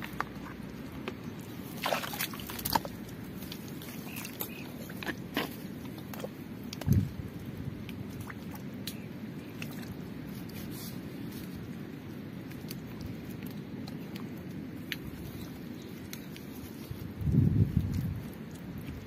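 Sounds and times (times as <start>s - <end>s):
water splashing: 0.0s - 10.9s
hands squelching in wet mud: 0.0s - 19.0s.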